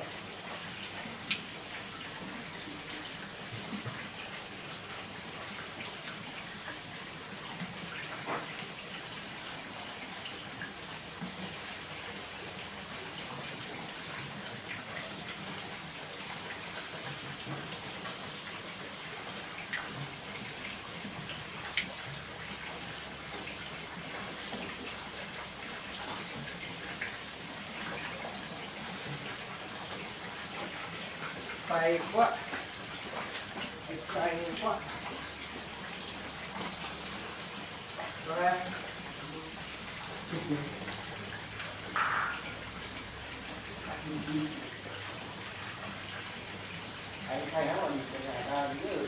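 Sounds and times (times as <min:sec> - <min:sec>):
wood fire hissing: 0:00.0 - 0:49.0
steady high-pitched whine: 0:38.0 - 0:49.0.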